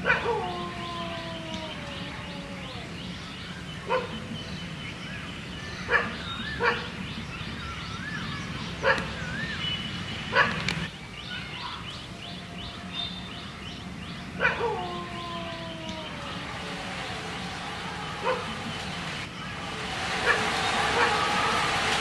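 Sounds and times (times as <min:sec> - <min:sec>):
dog barking: 0:00.0 - 0:00.4, 0:03.9 - 0:04.2, 0:05.9 - 0:06.9, 0:08.8 - 0:09.1, 0:10.3 - 0:10.6, 0:14.4 - 0:14.9.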